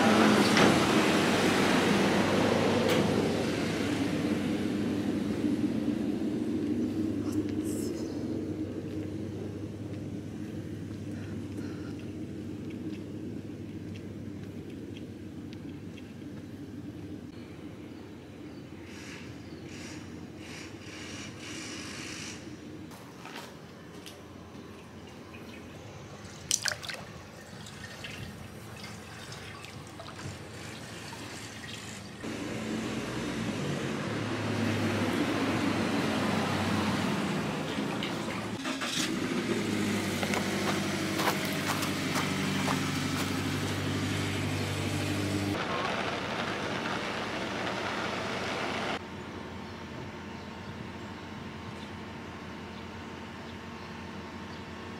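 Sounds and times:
steady low hum: 0:01.7 - 0:27.4.

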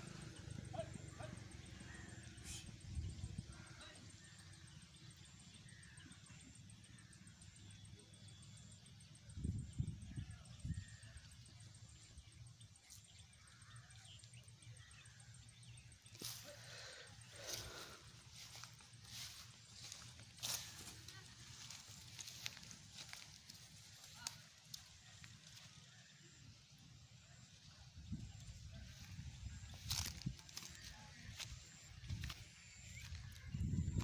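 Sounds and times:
faint chirps: 0:00.0 - 0:34.0.

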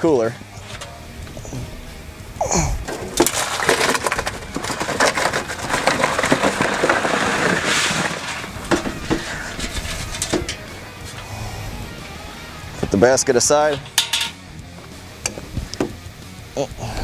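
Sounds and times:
crawfish shells clattering: 0:02.8 - 0:10.7, 0:13.6 - 0:14.4.

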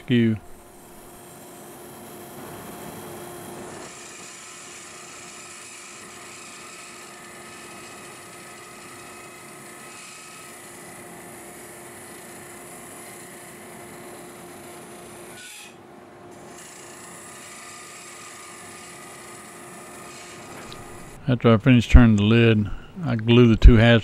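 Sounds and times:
tool scraping spinning wood: 0:00.0 - 0:10.9
lathe motor whine: 0:16.6 - 0:21.2.

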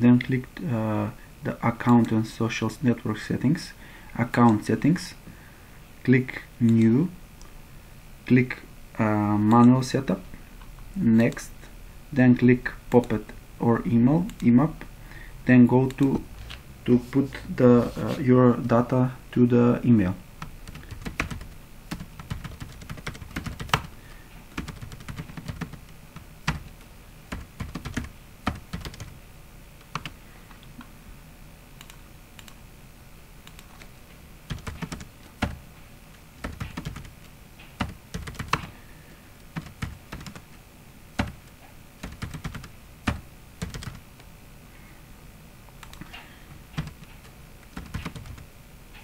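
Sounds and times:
keyboard typing: 0:20.4 - 0:29.2, 0:29.8 - 0:30.7, 0:33.4 - 0:33.9, 0:34.5 - 0:35.6, 0:36.4 - 0:38.8, 0:39.4 - 0:40.6, 0:41.2 - 0:44.3, 0:45.8 - 0:48.4.

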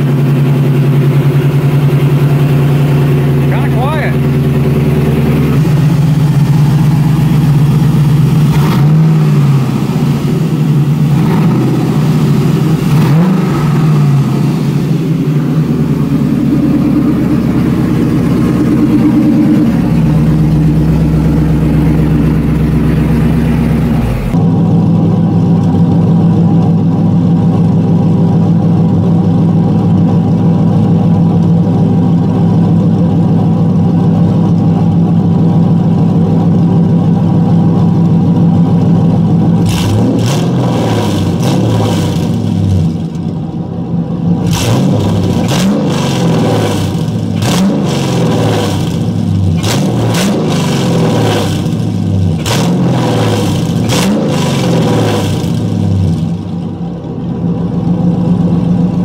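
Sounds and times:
exhaust crackles: 0:00.0 - 0:24.6, 0:44.3 - 0:59.0
engine revving in throttle blips: 0:00.0 - 0:26.0, 0:39.2 - 0:43.6, 0:44.2 - 0:59.0
car engine idling: 0:00.0 - 0:59.0.

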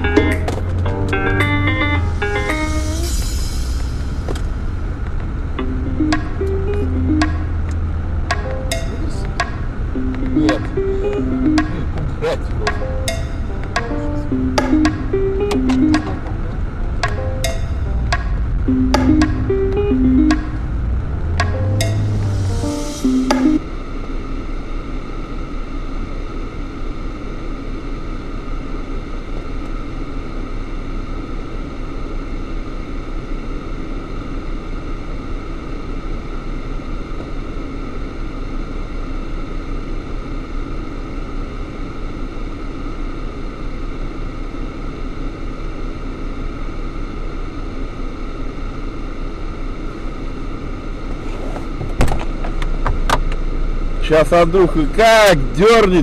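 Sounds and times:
car engine idling: 0:00.0 - 0:25.5.

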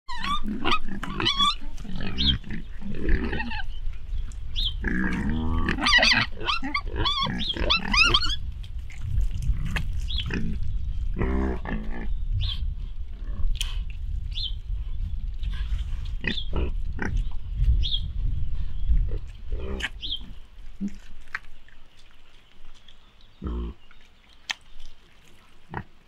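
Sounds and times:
piglets squealing: 0:00.1 - 0:02.4, 0:03.0 - 0:03.7, 0:05.4 - 0:08.4.

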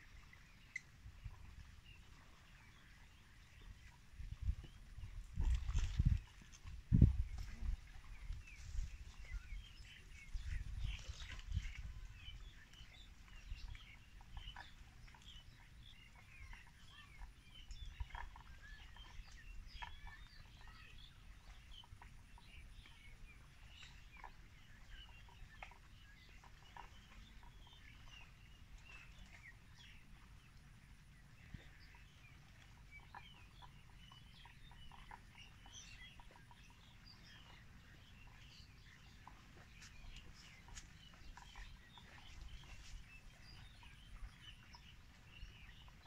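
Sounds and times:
small birds chirping: 0:00.2 - 0:46.0.

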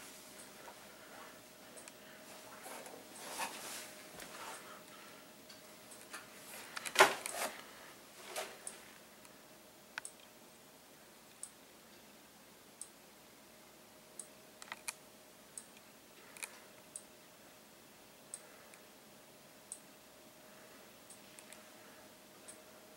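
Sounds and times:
faint steady tone: 0:07.6 - 0:22.9
strobe ticking: 0:19.6 - 0:20.0.

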